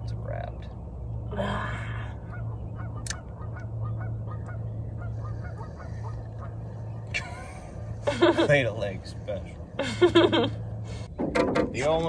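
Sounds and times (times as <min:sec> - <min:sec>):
geese honking: 0:02.1 - 0:08.8.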